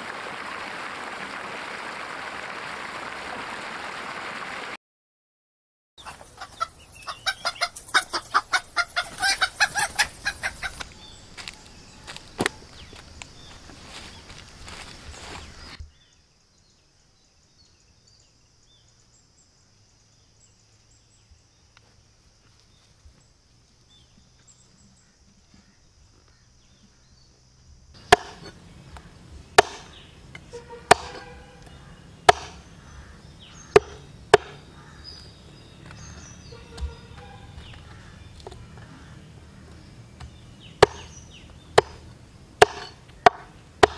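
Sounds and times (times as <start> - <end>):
cleaver chopping on wooden block: 28.0 - 28.6, 29.6 - 30.0, 30.8 - 34.7, 40.2 - 43.9.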